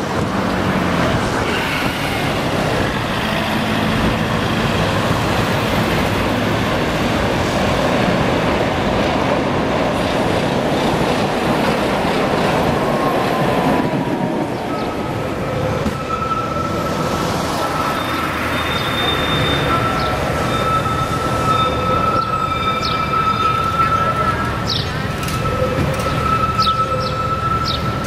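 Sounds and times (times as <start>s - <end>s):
tram wheels rumbling on rails: 0.0s - 28.0s
tram wheels squealing: 0.0s - 28.0s.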